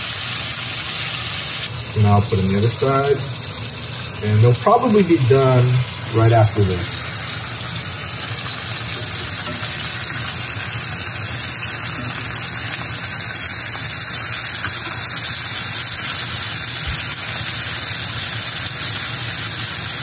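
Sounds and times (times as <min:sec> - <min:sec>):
meat sizzling in oil: 0:00.0 - 0:20.0
metal tongs turning meat: 0:08.2 - 0:15.3.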